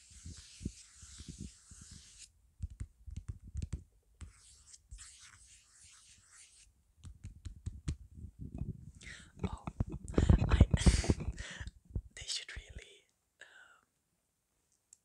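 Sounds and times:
fingers rubbing and scratching: 0:00.0 - 0:08.0
soft low taps and knocks: 0:09.4 - 0:12.2.

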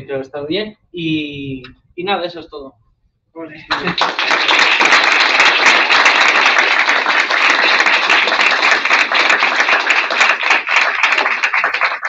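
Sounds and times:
audience applauding: 0:03.7 - 0:12.0.

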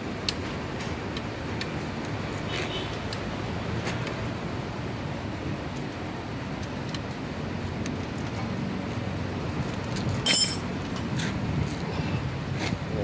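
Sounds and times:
hand tool clinking on metal: 0:10.2 - 0:11.1.

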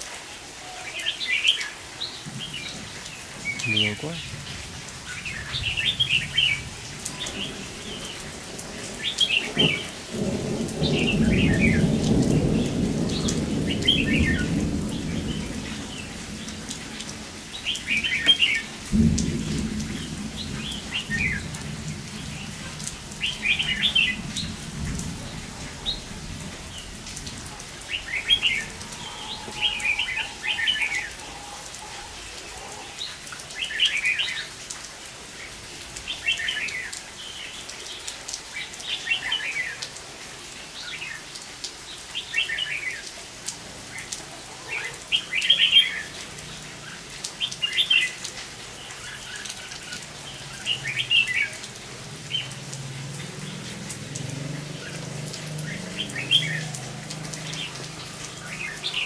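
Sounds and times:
steady rain: 0:00.0 - 0:59.0
birds chattering calls: 0:00.8 - 0:34.6, 0:54.8 - 0:59.0
low thunder rolls: 0:02.2 - 0:31.2.

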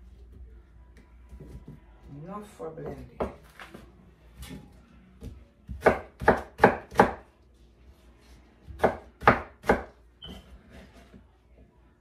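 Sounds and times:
knife chopping on wooden board: 0:05.7 - 0:07.3, 0:08.6 - 0:10.0.

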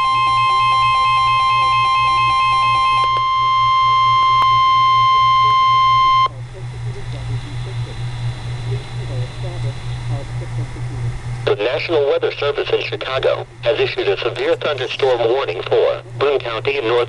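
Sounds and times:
pulsing beep: 0:00.0 - 0:06.4
steady alarm tone: 0:00.0 - 0:06.4
low hum: 0:00.0 - 0:17.0
radio hiss: 0:04.4 - 0:17.0.

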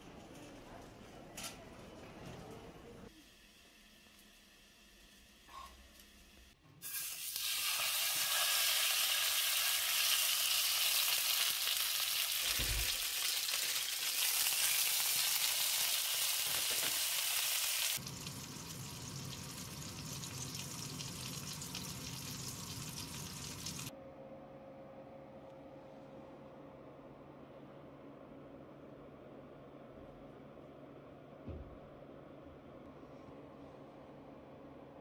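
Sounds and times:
steak sizzling in frying pan: 0:06.8 - 0:23.9.

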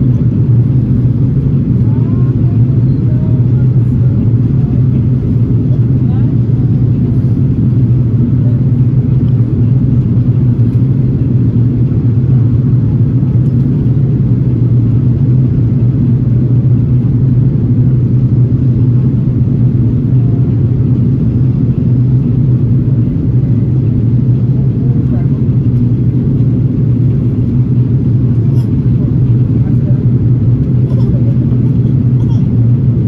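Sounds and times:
airliner cabin drone: 0:00.0 - 0:33.0.

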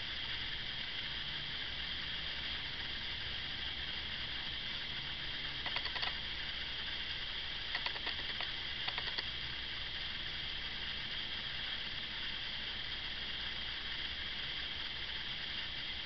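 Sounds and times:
steady hiss: 0:00.0 - 0:16.0
light quick clicks: 0:05.6 - 0:06.2, 0:07.7 - 0:09.3.

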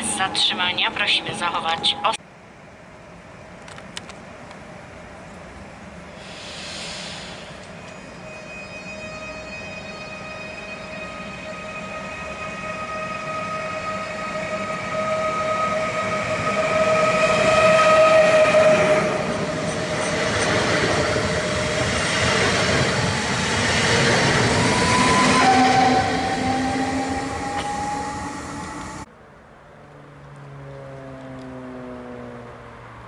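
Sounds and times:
steady high tone: 0:07.2 - 0:20.2
train wheels rolling: 0:13.8 - 0:29.1
train motor whine: 0:22.9 - 0:29.1.

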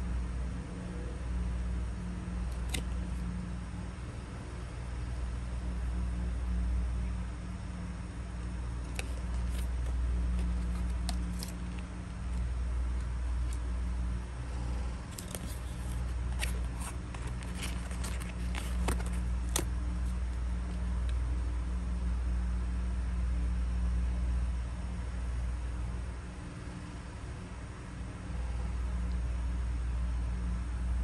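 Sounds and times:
steady low hum: 0:00.0 - 0:31.0
card sleeve and vial clicking: 0:02.5 - 0:03.0, 0:08.8 - 0:11.8, 0:15.1 - 0:19.7.

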